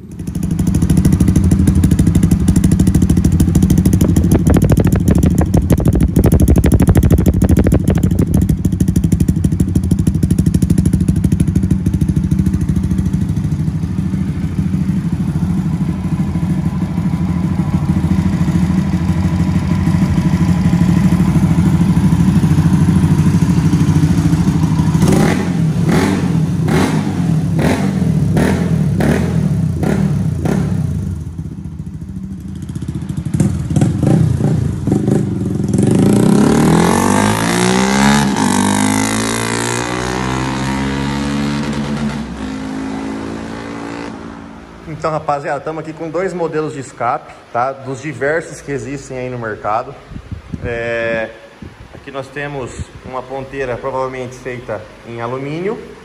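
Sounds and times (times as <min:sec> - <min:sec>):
motorcycle engine idling: 0:00.0 - 0:36.0
motorcycle throttle blips: 0:00.0 - 0:44.7.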